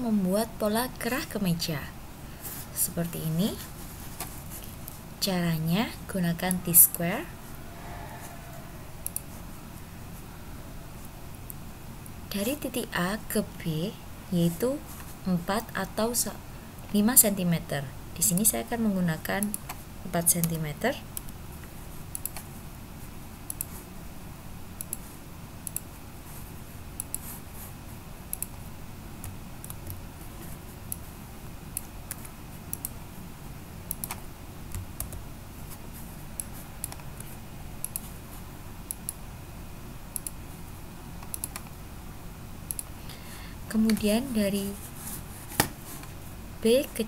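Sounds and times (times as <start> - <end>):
steady low hum: 0.0 - 47.0
keyboard and mouse clicks: 9.0 - 9.3, 22.1 - 22.5, 28.3 - 28.6, 31.7 - 33.0, 33.9 - 35.2, 36.4 - 38.1, 40.1 - 40.4, 41.2 - 41.8, 42.7 - 42.9.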